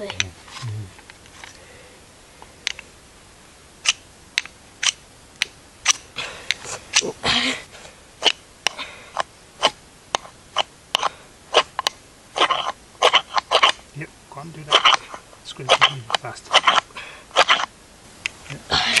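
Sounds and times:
ferro rod scraped with striker: 0:12.4 - 0:13.8, 0:14.7 - 0:17.7.

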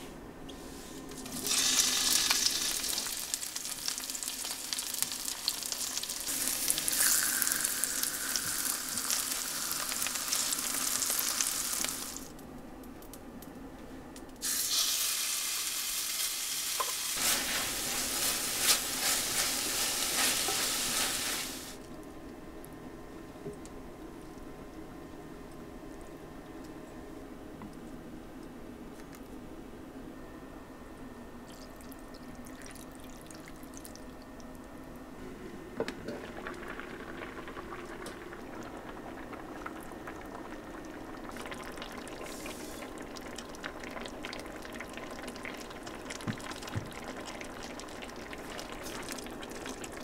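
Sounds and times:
food sizzling in hot oil: 0:01.4 - 0:12.3, 0:14.4 - 0:21.8.

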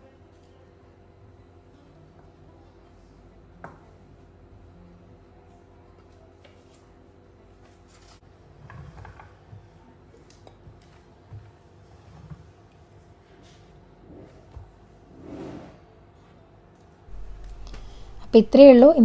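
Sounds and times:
cloth rubbing surface: 0:14.0 - 0:15.8
faint steady hum: 0:15.9 - 0:19.0.

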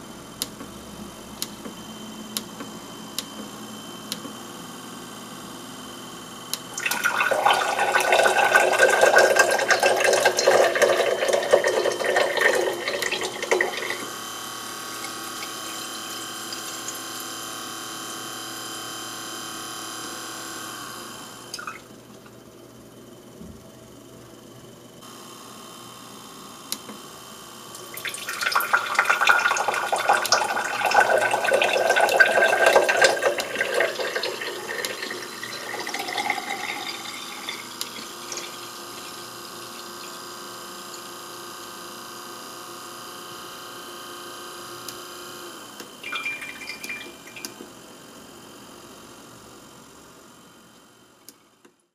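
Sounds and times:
water pouring into a glass: 0:06.8 - 0:14.1, 0:27.9 - 0:40.2, 0:46.0 - 0:47.6
small motor humming: 0:09.6 - 0:22.3, 0:30.1 - 0:51.5
water dripping: 0:46.1 - 0:47.6.

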